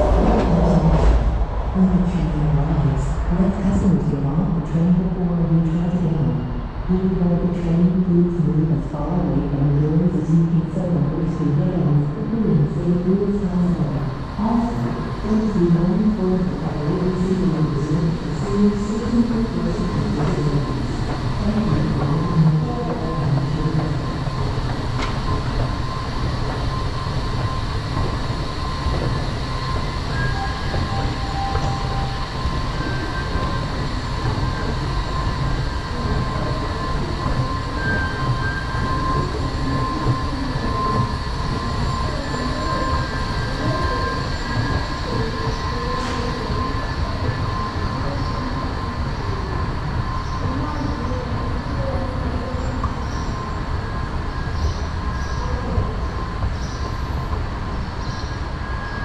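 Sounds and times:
train rumbling on rails: 0:00.0 - 0:59.0.

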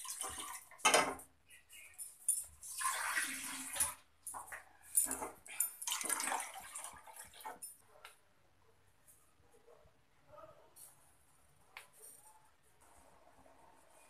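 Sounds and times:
water pouring into a steel pot: 0:00.0 - 0:00.9, 0:02.6 - 0:04.1, 0:05.6 - 0:07.7.

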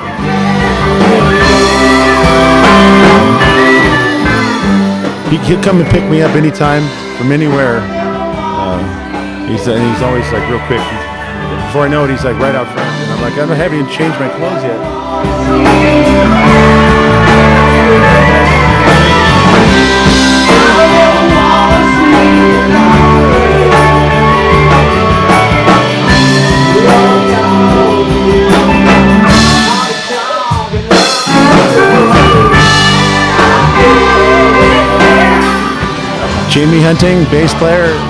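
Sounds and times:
lead singer singing: 0:00.0 - 0:11.6, 0:12.7 - 0:37.9
electric bass: 0:00.0 - 0:30.0, 0:30.7 - 0:38.0
drum kit: 0:00.0 - 0:38.0
electric guitars: 0:00.0 - 0:38.0.

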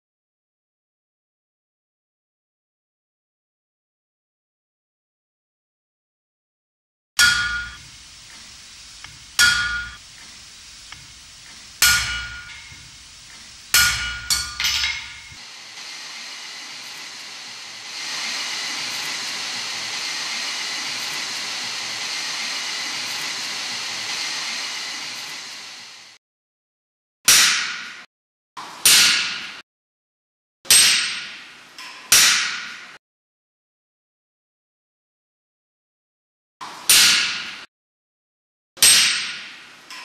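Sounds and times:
hammer ringing on anvil: 0:07.2 - 0:07.9, 0:09.4 - 0:10.0, 0:11.6 - 0:15.4
forge fire hissing: 0:07.2 - 0:26.2.

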